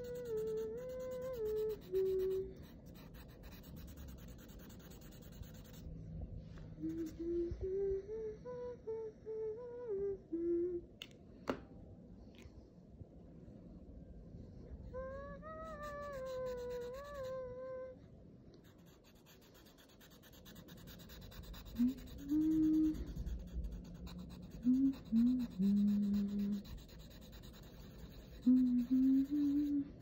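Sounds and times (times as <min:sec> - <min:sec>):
marker pen scratching paper: 0:00.0 - 0:05.9, 0:15.8 - 0:17.3, 0:18.6 - 0:29.6
person humming low notes: 0:06.7 - 0:11.0, 0:14.7 - 0:18.0, 0:21.7 - 0:23.4, 0:28.4 - 0:30.0.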